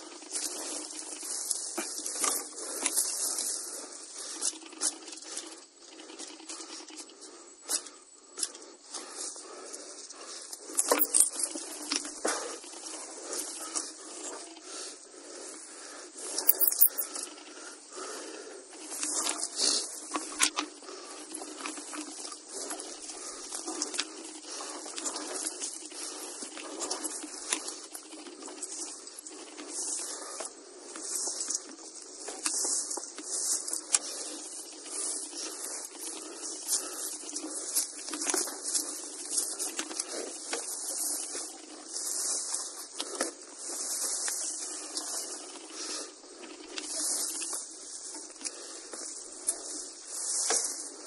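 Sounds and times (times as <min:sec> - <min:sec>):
small clicks: 0:16.4 - 0:17.1
footsteps crunching through dry leaves: 0:31.0 - 0:51.0.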